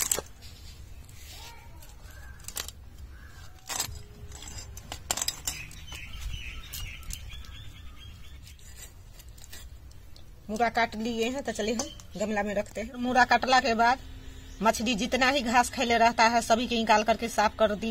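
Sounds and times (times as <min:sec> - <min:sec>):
knife cutting and scraping fish: 0:00.0 - 0:10.6.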